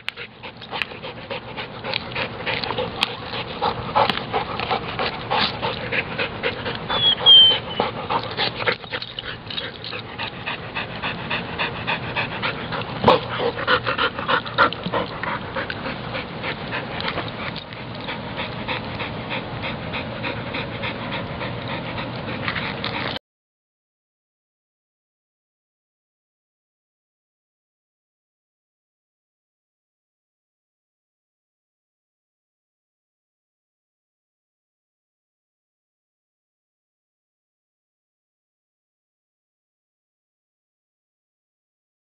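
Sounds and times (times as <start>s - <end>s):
dog panting: 0.0s - 23.2s
high squeak: 6.9s - 7.8s.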